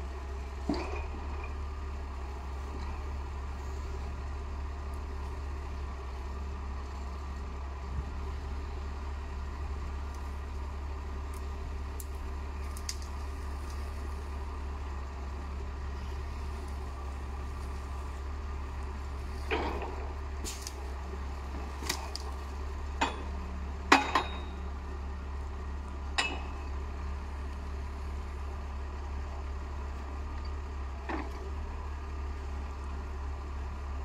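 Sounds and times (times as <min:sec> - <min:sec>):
crane and grapple clanks: 0:00.0 - 0:34.0
tractor diesel engine running: 0:00.0 - 0:34.0.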